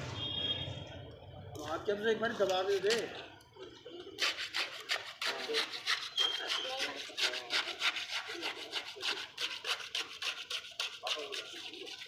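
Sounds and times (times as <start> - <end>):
trowel scraping wet cement: 4.2 - 12.0.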